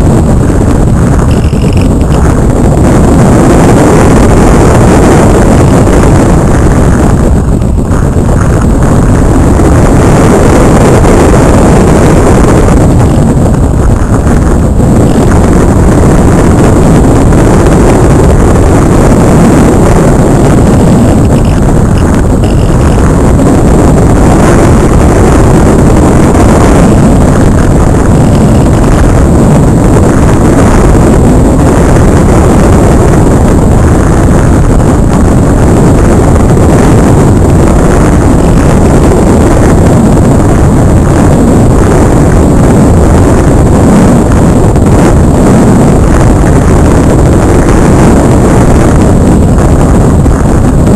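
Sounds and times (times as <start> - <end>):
wind buffeting microphone: 0.0 - 50.9.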